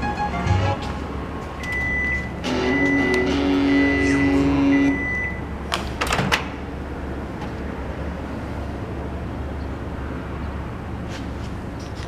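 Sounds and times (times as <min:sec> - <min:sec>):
microwave beep: 0:01.6 - 0:05.4.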